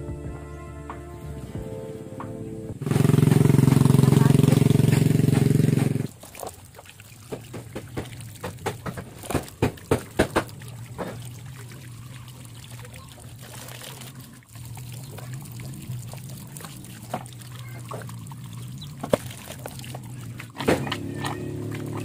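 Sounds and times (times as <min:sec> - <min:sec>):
low hum: 0:00.0 - 0:06.1
water pouring from a hose: 0:02.8 - 0:22.0
splashes and wet slaps: 0:02.9 - 0:22.0.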